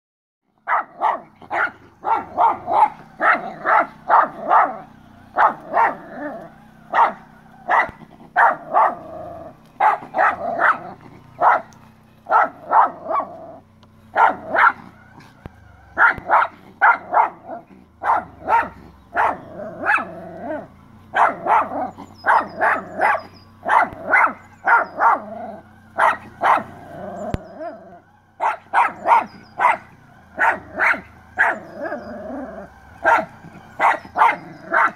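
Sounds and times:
dog barking: 0:00.6 - 0:34.9.

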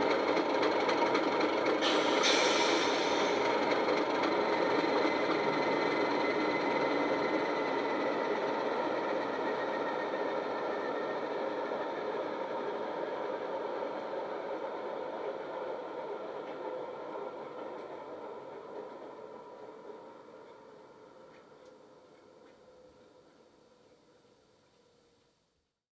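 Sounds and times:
simulated diesel engine running: 0:00.0 - 0:20.0
air hiss: 0:01.8 - 0:03.5.

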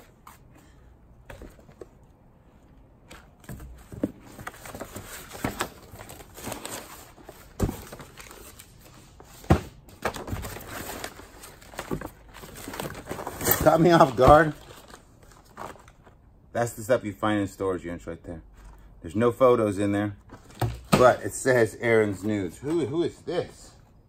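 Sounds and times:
paper and cardboard rustling: 0:03.0 - 0:16.2.

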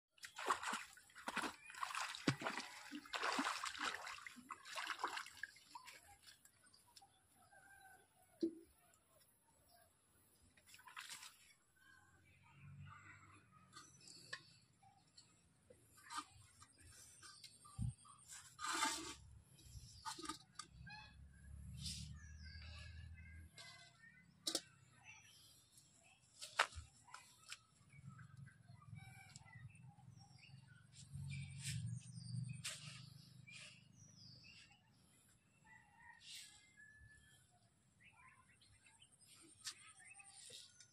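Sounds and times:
water splashing and sloshing: 0:00.2 - 0:07.0, 0:10.6 - 0:11.8
birds chirping: 0:19.6 - 0:36.2.

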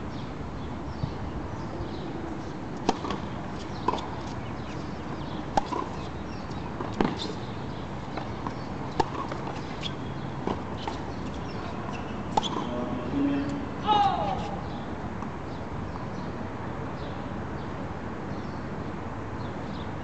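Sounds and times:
tennis ball bouncing on court: 0:02.8 - 0:07.4, 0:08.1 - 0:12.7
tennis ball struck by rackets: 0:02.8 - 0:07.4, 0:08.1 - 0:12.7.

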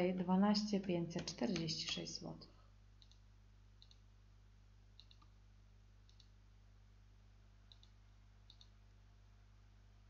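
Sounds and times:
low steady hum: 0:00.0 - 0:10.0
computer mouse clicks: 0:03.0 - 0:03.2, 0:03.8 - 0:04.0, 0:05.0 - 0:05.3, 0:06.0 - 0:06.4, 0:07.7 - 0:08.8.

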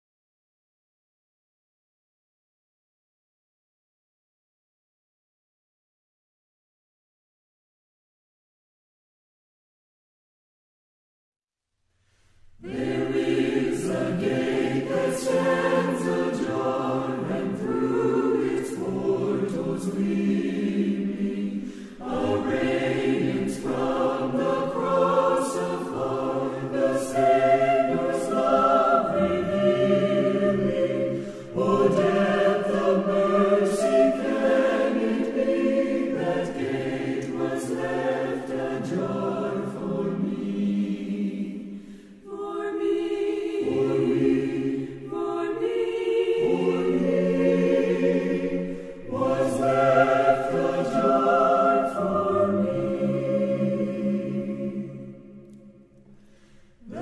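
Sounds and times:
choir singing in harmony: 0:12.4 - 0:57.0.

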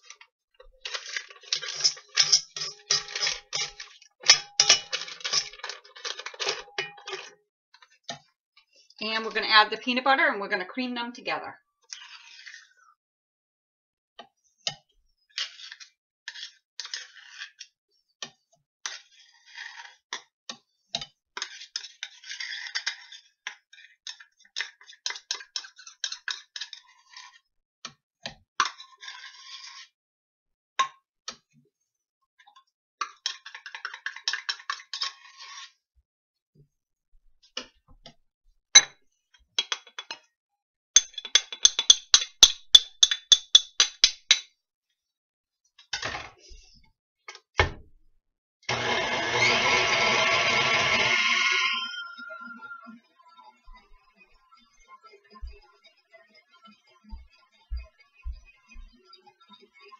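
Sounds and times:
metal knife scraping measuring cup: 0:00.9 - 0:07.3, 0:49.4 - 0:52.8
utensil clinking against bowl: 0:01.6 - 0:07.3, 0:41.0 - 0:44.4.

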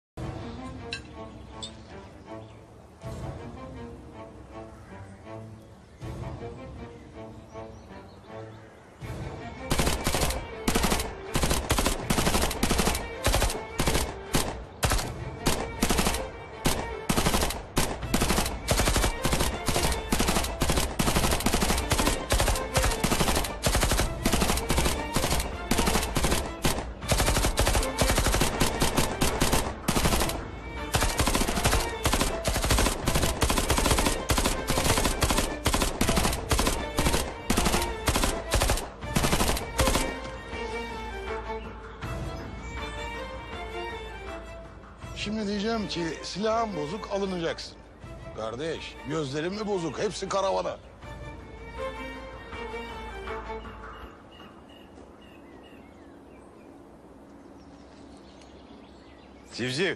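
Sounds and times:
rapid gunfire: 0:09.7 - 0:40.3.

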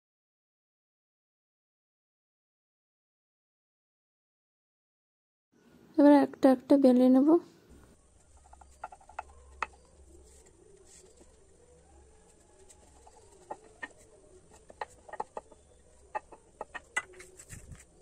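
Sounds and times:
rolling pin rolling dough: 0:08.1 - 0:18.0
rolling pin knocking on board: 0:12.9 - 0:17.4.

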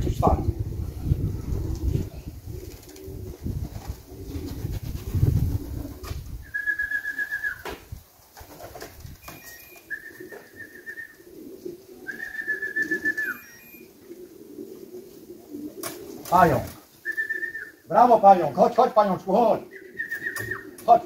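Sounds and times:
pigeons cooing: 0:00.0 - 0:21.0
warbling whistle calls: 0:06.4 - 0:07.7, 0:09.2 - 0:11.3, 0:12.0 - 0:13.9, 0:17.0 - 0:17.9, 0:19.7 - 0:20.8.

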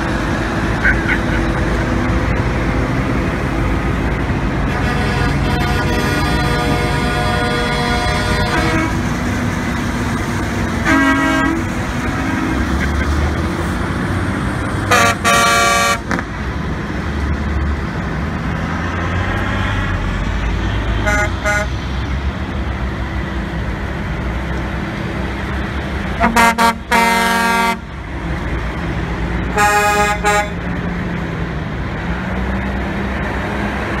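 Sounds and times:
diesel truck engines running: 0:00.0 - 0:34.0
truck air horns honking: 0:04.5 - 0:09.4, 0:10.8 - 0:12.9, 0:14.9 - 0:16.3, 0:21.0 - 0:21.8, 0:26.2 - 0:27.9, 0:29.5 - 0:30.6.

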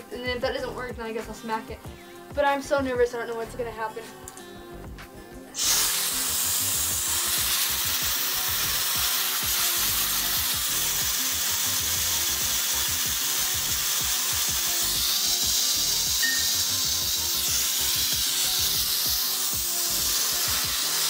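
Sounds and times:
compressed air hissing: 0:05.6 - 0:21.0.

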